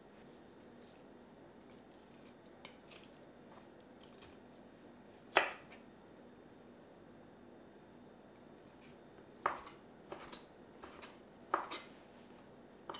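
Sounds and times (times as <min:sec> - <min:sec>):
knife chopping into wooden board: 0:05.3 - 0:05.8, 0:09.4 - 0:11.9.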